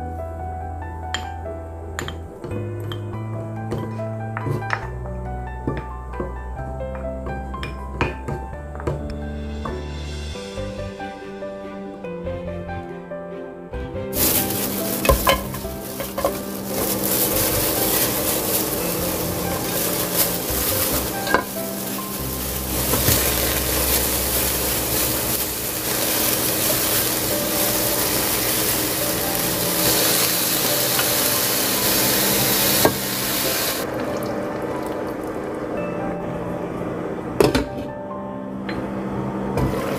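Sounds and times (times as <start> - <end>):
food crackling and rustling in pot: 14.1 - 35.4.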